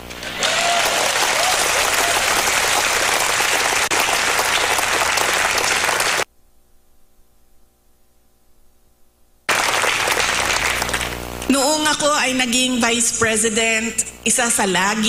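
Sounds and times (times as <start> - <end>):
faint steady hum: 0.0 - 15.0
crowd applauding: 0.1 - 6.3, 9.5 - 11.3.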